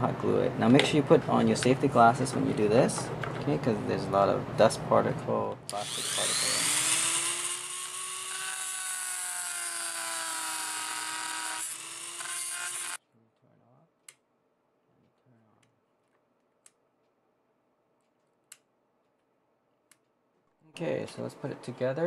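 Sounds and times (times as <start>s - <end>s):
rotary tool cutting plastic: 5.7s - 13.0s.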